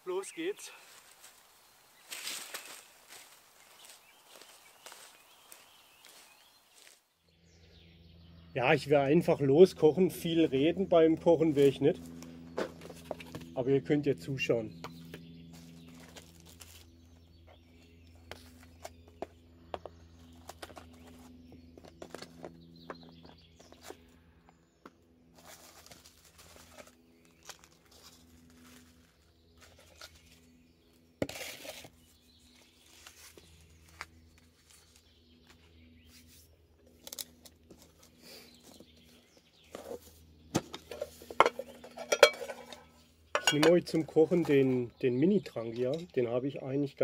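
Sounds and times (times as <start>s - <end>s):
birds chirping faintly: 0.0s - 47.0s
containers clicking and knocking: 40.6s - 44.0s.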